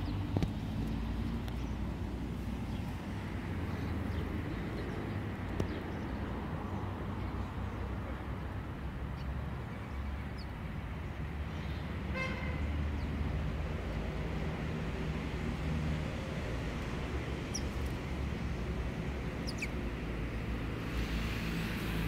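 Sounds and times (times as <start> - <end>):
city traffic rumble: 0.0 - 22.0
vehicle horn toot: 12.1 - 12.7.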